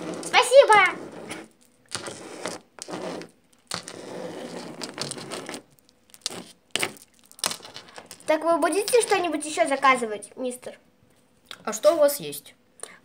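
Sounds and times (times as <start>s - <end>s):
plastic toys scraping on table: 0.0s - 9.3s.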